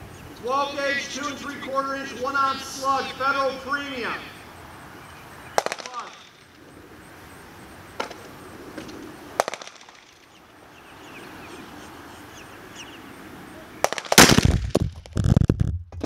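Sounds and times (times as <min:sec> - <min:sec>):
sharp cracks: 0:05.6 - 0:06.6, 0:08.0 - 0:10.4, 0:13.8 - 0:16.0
gunshot blast and impact crash: 0:13.9 - 0:15.1.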